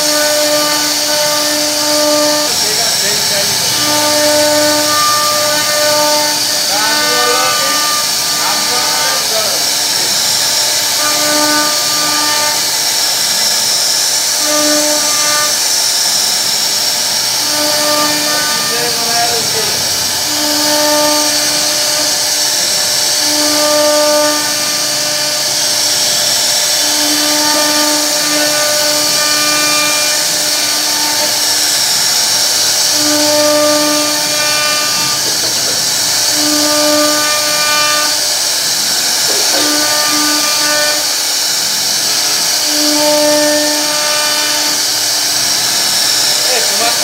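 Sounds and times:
cnc router spindle whine: 0.0s - 47.0s.

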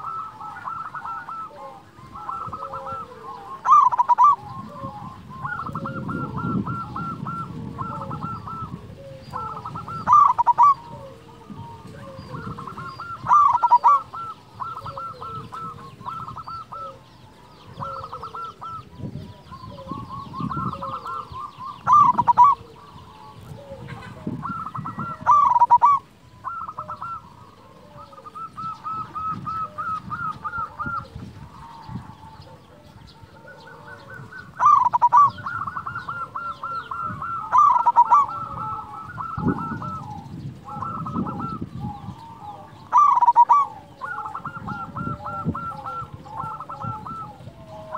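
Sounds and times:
dove cooing: 0.0s - 47.9s.

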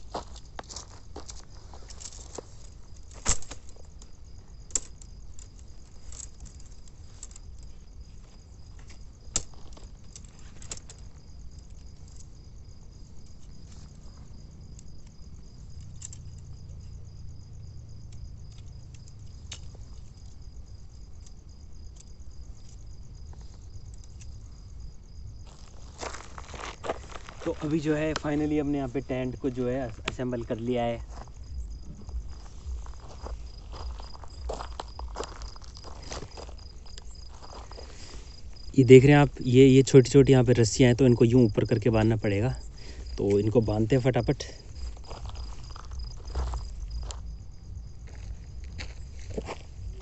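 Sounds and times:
tent poles clicking: 0.0s - 12.4s, 13.1s - 16.6s, 18.1s - 24.4s, 32.0s - 38.6s
crickets chirring: 0.0s - 50.0s
low rumble: 31.1s - 36.1s.

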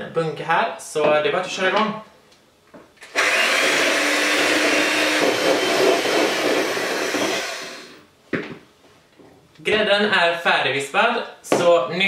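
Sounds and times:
electric hand mixer whipping cream: 3.1s - 8.0s.

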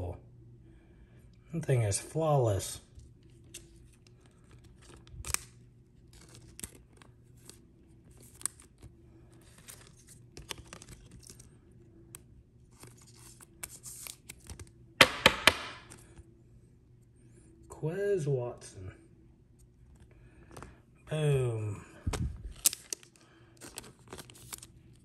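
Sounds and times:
soft plastic rustling: 2.8s - 14.8s, 22.0s - 25.0s
plastic sleeve scraping crinkle: 3.2s - 11.5s, 22.1s - 25.0s.

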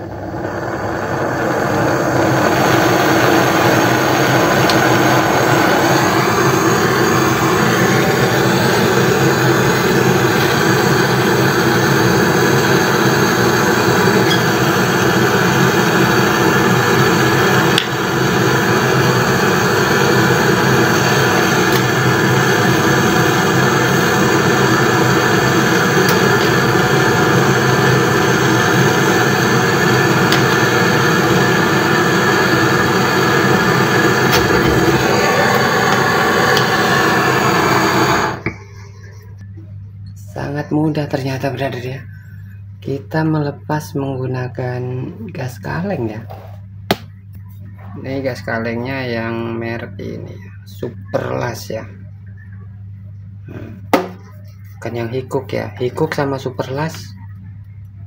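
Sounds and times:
gas torch hissing: 0.0s - 39.2s.

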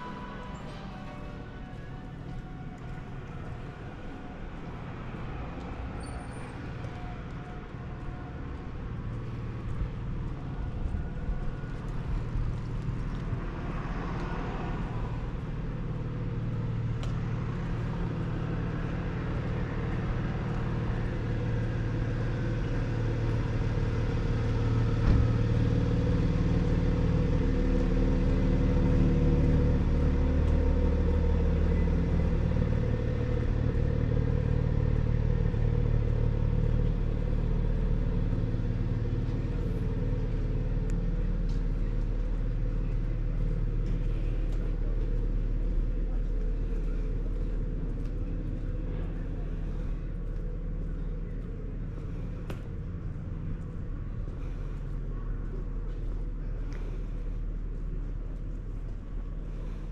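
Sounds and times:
vehicle engine rumble: 0.0s - 59.9s.

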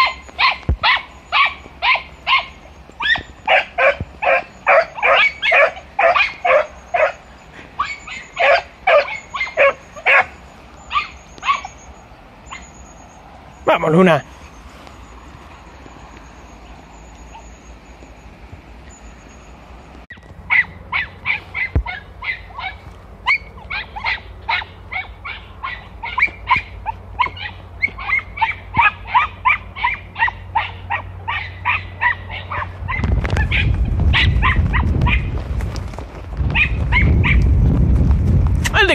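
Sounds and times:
dogs barking in high yelps: 0.0s - 18.1s, 20.1s - 35.4s, 36.5s - 37.5s
low rumbling noise: 14.2s - 38.9s.

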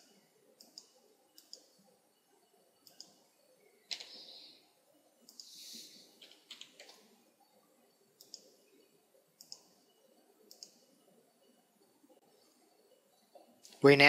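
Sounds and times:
computer mouse clicks: 0.0s - 1.9s, 2.8s - 3.2s, 3.9s - 4.5s, 5.2s - 7.1s, 8.2s - 8.6s, 9.4s - 11.1s.

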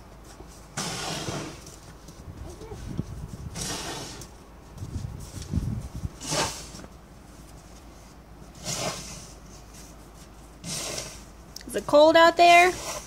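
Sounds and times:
snow shovel scraping: 0.8s - 1.7s, 3.5s - 4.3s, 6.2s - 6.8s, 8.5s - 9.4s, 10.6s - 11.3s, 12.4s - 13.0s.

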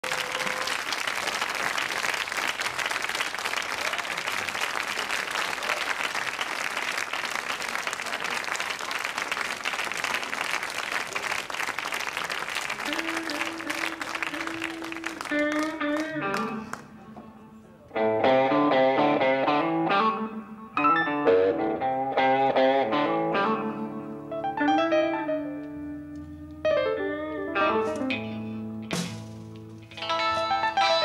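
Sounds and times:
audience applauding and cheering: 0.0s - 16.9s.

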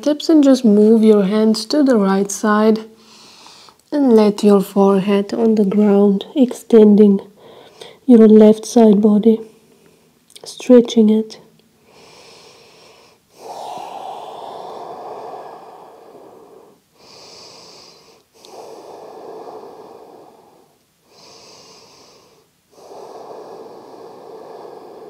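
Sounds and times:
woman breathing deeply: 3.0s - 3.8s, 7.4s - 8.0s, 11.8s - 25.0s.

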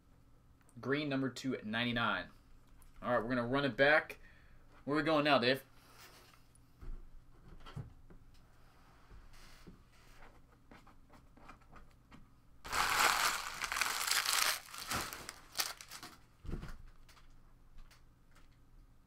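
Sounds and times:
foil wrappers crinkling: 12.7s - 16.2s.

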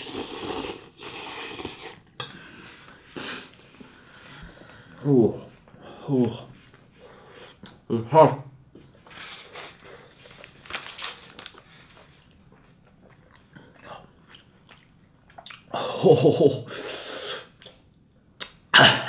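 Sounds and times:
man chewing noodles: 0.0s - 3.6s, 11.5s - 15.9s
man coughing: 18.7s - 19.0s.

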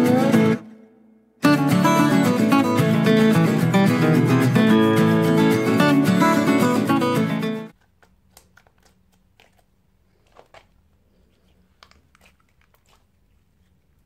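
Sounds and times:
acoustic guitar music: 0.0s - 7.8s
sticky clicks of slime: 7.7s - 10.7s.

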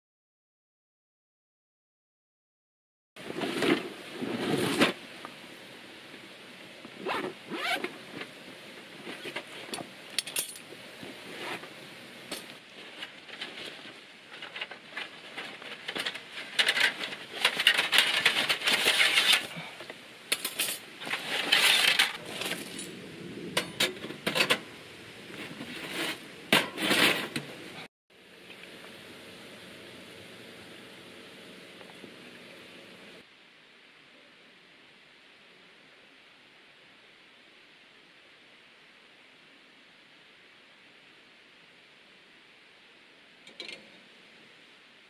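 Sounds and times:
zippers pulled open: 7.0s - 8.0s
metal parts clinking: 10.2s - 10.7s.

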